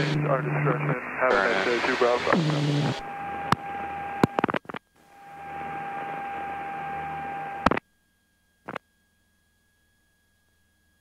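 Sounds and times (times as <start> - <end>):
radio hiss: 0.0 - 3.6.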